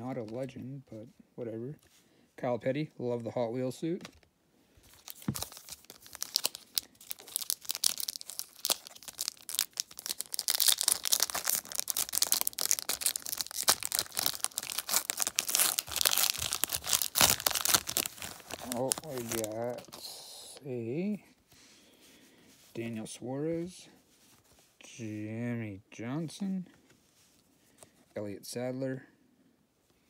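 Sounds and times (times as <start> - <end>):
foil pack tearing and crinkling: 5.0 - 19.9.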